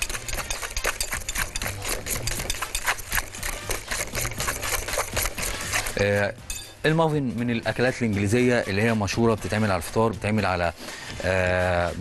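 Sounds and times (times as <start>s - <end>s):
whisk beating batter in glass bowl: 0.0s - 6.1s.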